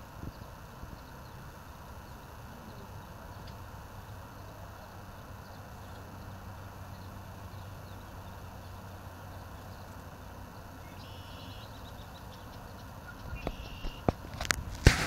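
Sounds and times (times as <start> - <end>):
faint bird chirps: 10.8 - 14.1.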